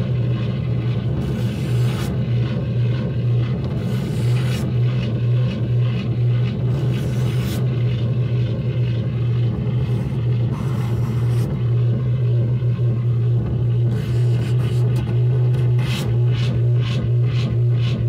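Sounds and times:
low hum: 0:00.0 - 0:18.0
brush scraping surface: 0:01.2 - 0:02.2, 0:03.8 - 0:04.8, 0:06.7 - 0:07.7, 0:09.8 - 0:11.6, 0:13.9 - 0:16.5.

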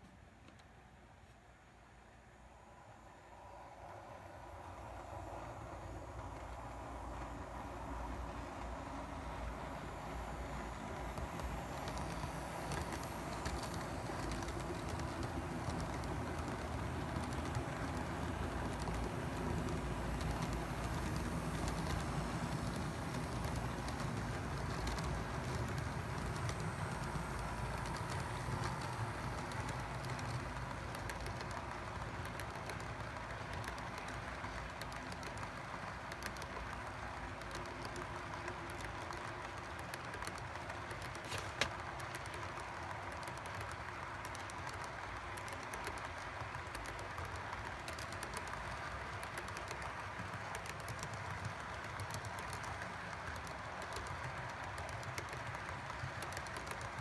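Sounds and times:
model train cars rolling on track: 0:02.6 - 0:57.0
wheels clicking over rail joints: 0:04.4 - 0:57.0.

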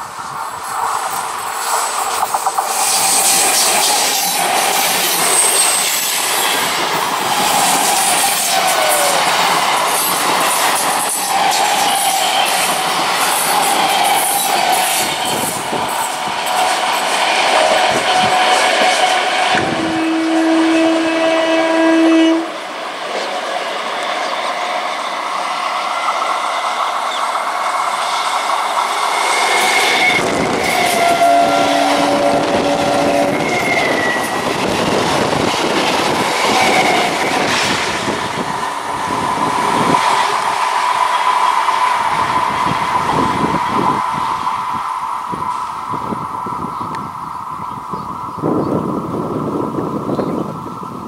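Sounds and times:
train wheels clattering over rail joints: 0:00.7 - 0:19.9
train horn: 0:16.5 - 0:22.6, 0:29.6 - 0:34.4.

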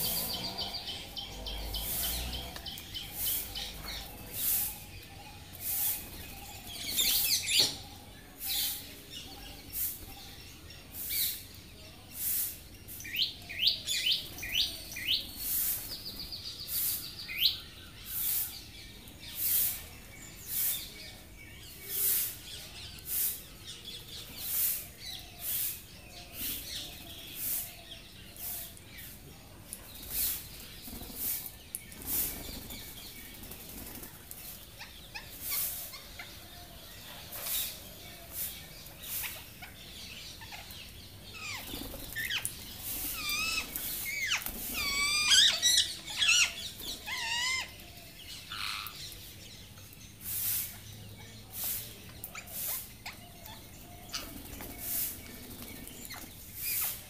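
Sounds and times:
parakeets squawking: 0:39.1 - 0:47.7, 0:48.5 - 0:49.0
harsh hissing bursts: 0:50.2 - 0:50.9.

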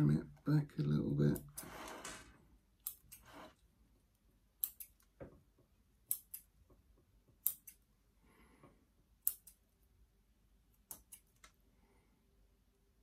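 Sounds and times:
scissors snipping: 0:04.6 - 0:05.0, 0:06.1 - 0:06.5, 0:07.4 - 0:07.8, 0:09.2 - 0:09.6, 0:10.9 - 0:11.4.

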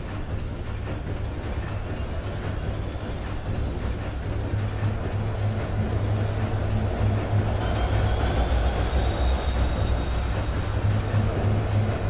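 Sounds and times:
noisy synthesizer drone: 0:00.0 - 0:12.0
deep bass: 0:04.5 - 0:12.0.

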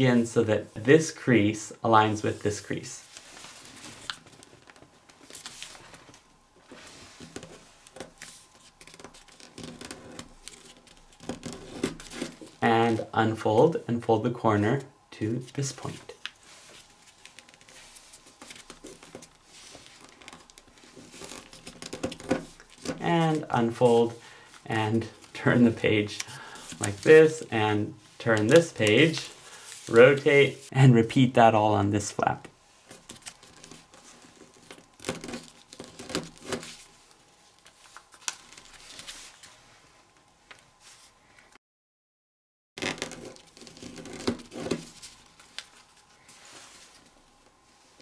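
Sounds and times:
paper rustling: 0:02.2 - 0:13.0, 0:15.5 - 0:27.6, 0:28.2 - 0:30.7, 0:32.8 - 0:39.7, 0:42.8 - 0:47.2.

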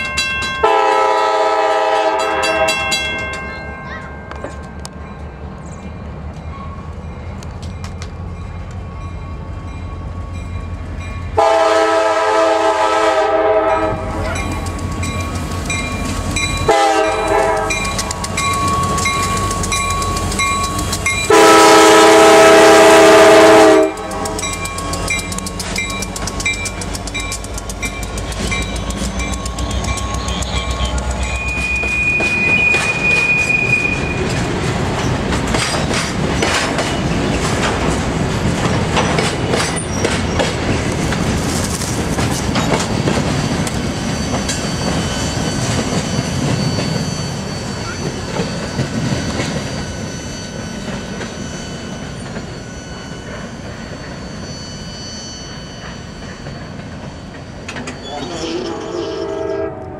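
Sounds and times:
diesel locomotives passing: 0:00.0 - 0:59.9
train horn blasts: 0:00.6 - 0:03.1, 0:11.4 - 0:14.2, 0:16.6 - 0:18.0, 0:21.3 - 0:24.5, 0:58.4 - 0:59.9
wheels clicking over rail joints: 0:14.2 - 0:21.3, 0:23.7 - 0:49.9
high wheel squeal: 0:24.1 - 0:37.2, 0:43.3 - 0:59.6.

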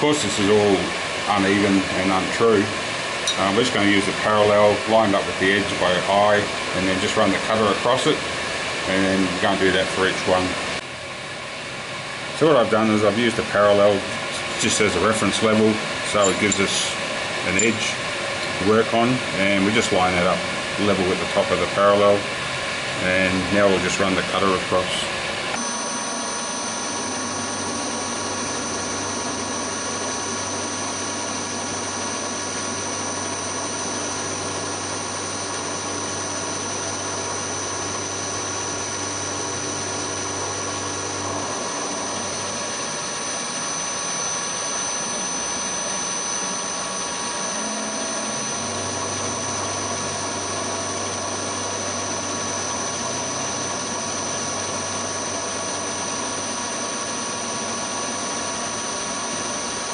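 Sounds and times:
milling machine whine and cutting: 0:00.0 - 0:59.9
low hum: 0:25.5 - 0:59.0.

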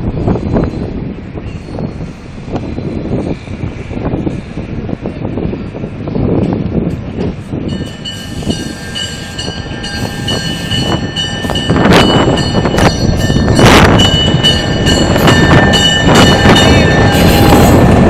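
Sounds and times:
diesel locomotive engine rumble: 0:00.0 - 0:18.0
locomotive bell ringing: 0:07.6 - 0:18.0.

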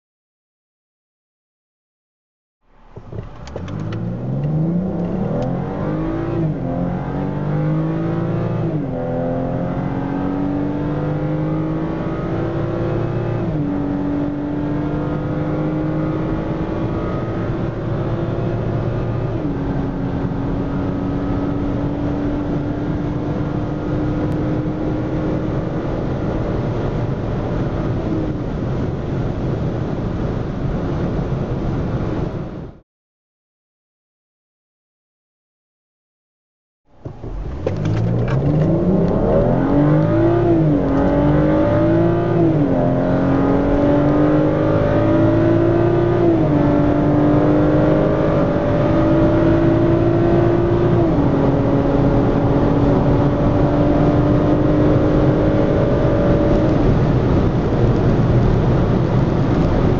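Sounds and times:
car engine accelerating: 0:02.7 - 0:32.4, 0:36.9 - 0:59.9
tyre and wind noise: 0:36.9 - 0:45.2, 0:49.9 - 0:59.9.

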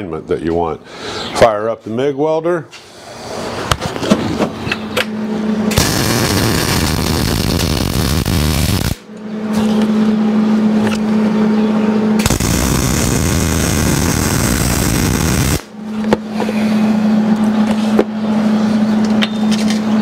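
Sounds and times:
steady low hum: 0:00.0 - 0:20.0
welder arc crackling and sizzling: 0:05.7 - 0:09.1, 0:12.2 - 0:15.7.

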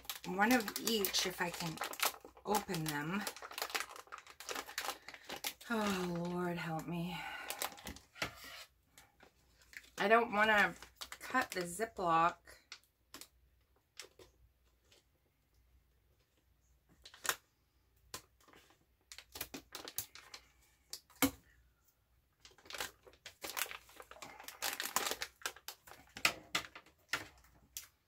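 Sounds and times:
plastic pouch crinkling: 0:00.0 - 0:06.7, 0:07.4 - 0:08.2, 0:10.7 - 0:11.7, 0:17.0 - 0:17.4, 0:18.2 - 0:21.1, 0:22.3 - 0:28.0.

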